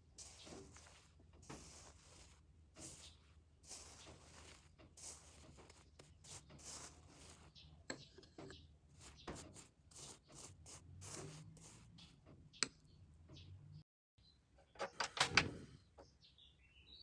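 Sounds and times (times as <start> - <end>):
spoon scraping paste on bread: 0.0 - 12.8.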